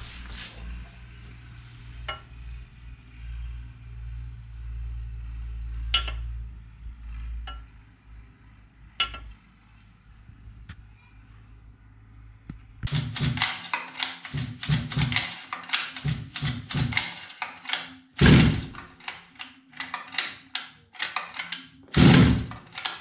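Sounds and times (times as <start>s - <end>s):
metallic clinks and knocks: 12.9s - 23.0s.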